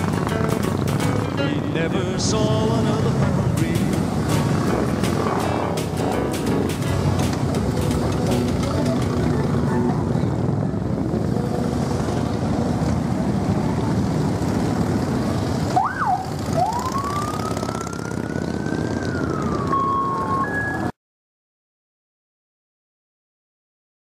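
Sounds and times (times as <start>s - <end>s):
motorcycle engines rumbling: 0.0s - 20.9s
siren whooping and wailing: 15.6s - 21.0s.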